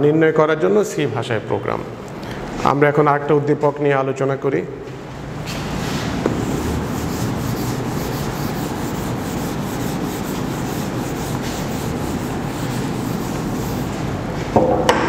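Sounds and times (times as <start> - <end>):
eraser scrubbing a whiteboard: 5.5 - 14.2.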